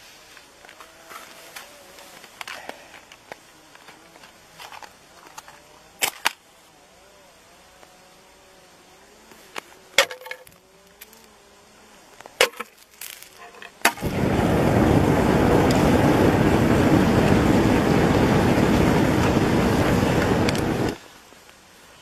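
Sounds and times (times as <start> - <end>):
gas rushing out: 13.9 - 21.0.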